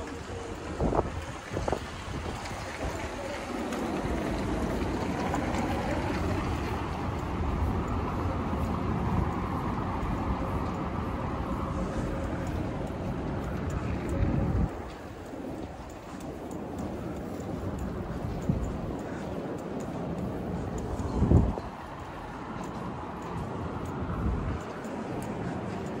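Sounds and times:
vehicle engine rumbling: 0.0 - 26.0.

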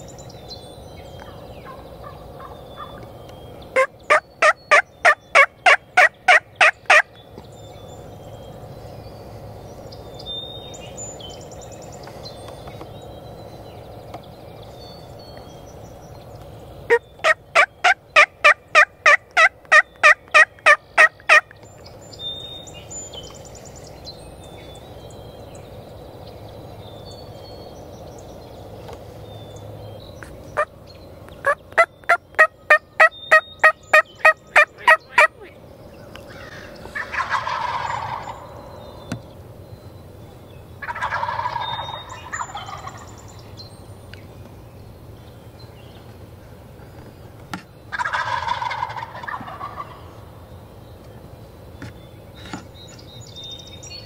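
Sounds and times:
turkeys gobbling: 1.2 - 3.1, 3.7 - 7.1, 16.9 - 21.5, 30.5 - 30.8, 31.4 - 35.6, 36.2 - 39.0, 40.8 - 43.3, 47.9 - 50.3
turkey yelps: 1.6 - 3.0, 3.8 - 7.0, 16.9 - 21.4, 31.4 - 35.5, 36.4 - 38.6, 40.8 - 43.1, 47.9 - 50.0.

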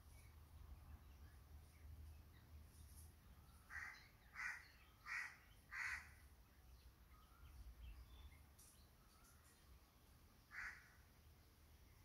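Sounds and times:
crow cawing: 3.7 - 6.2, 10.5 - 11.0.

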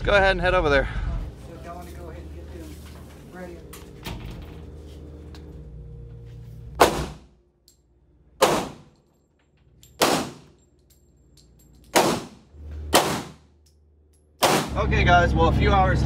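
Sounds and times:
gunshots with reverberation: 6.8 - 7.3, 8.4 - 9.0, 10.0 - 10.6, 11.9 - 13.5, 14.4 - 14.8.

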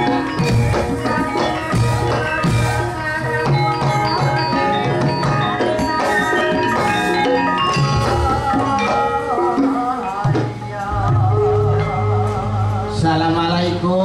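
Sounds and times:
drum beats: 0.0 - 14.0
metallophones ringing: 0.0 - 14.0.

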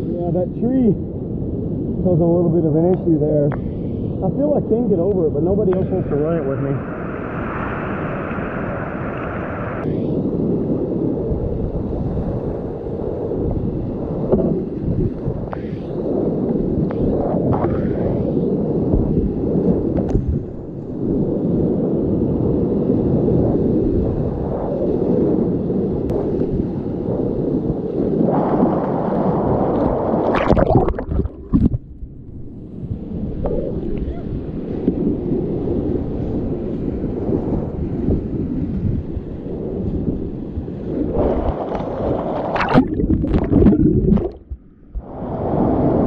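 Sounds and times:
wind buffeting microphone: 0.0 - 46.0
paddle splashes: 30.3 - 31.8, 42.2 - 44.6.

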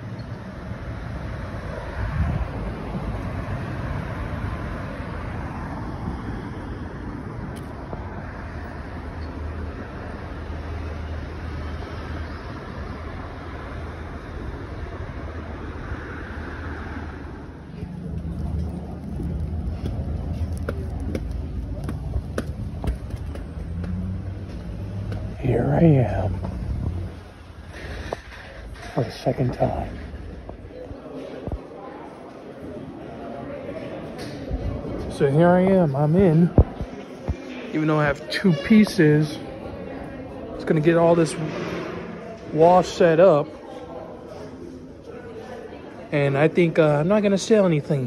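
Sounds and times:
rumble of engines and tyres: 0.0 - 31.7, 34.0 - 43.3
cars passing: 0.0 - 48.0
low engine hum: 4.4 - 30.8.

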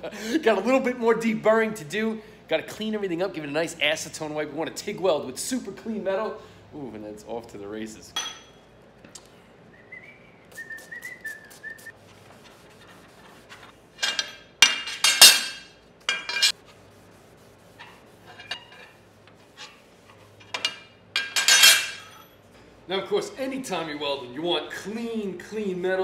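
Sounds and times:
person whistling: 9.7 - 11.9
steel pieces clinking: 14.0 - 16.6, 20.4 - 22.3.

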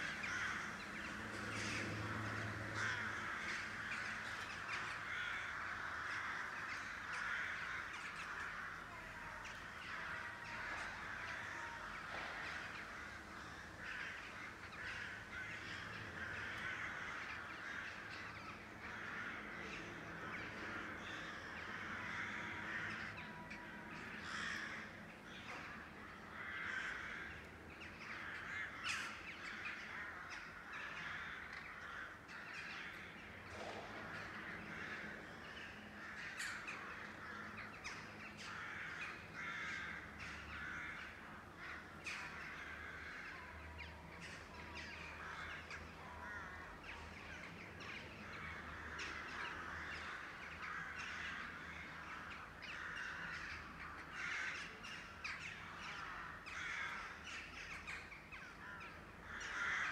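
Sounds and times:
crows cawing: 0.0 - 59.9.

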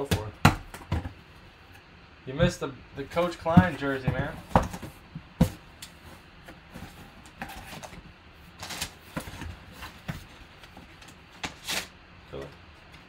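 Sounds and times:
cardboard flaps scraping and rustling: 3.1 - 12.4.

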